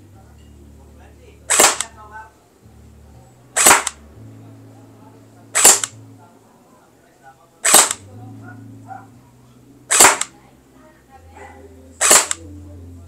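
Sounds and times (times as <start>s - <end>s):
gel blaster shots: 1.5s - 1.9s, 3.6s - 4.0s, 5.6s - 5.9s, 7.6s - 8.0s, 9.9s - 10.3s, 12.0s - 12.4s.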